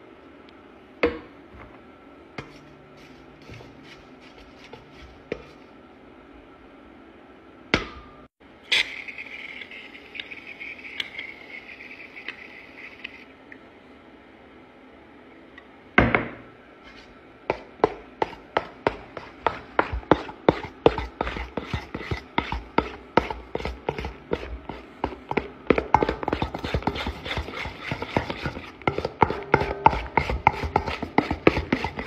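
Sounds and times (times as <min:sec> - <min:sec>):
slime squelching in a bowl: 0:18.2 - 0:32.0.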